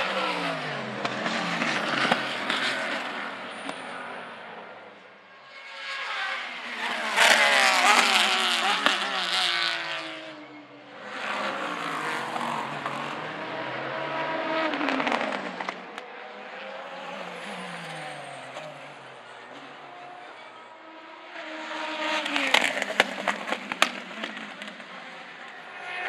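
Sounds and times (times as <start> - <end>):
race cars passing: 0.0 - 26.0.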